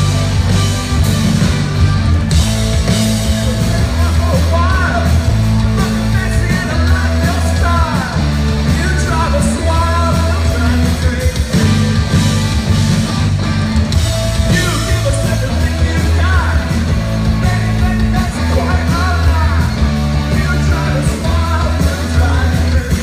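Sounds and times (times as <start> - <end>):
held bass notes: 0.0 - 23.0
rock band playing: 0.0 - 23.0
person singing: 3.0 - 12.4, 14.4 - 23.0.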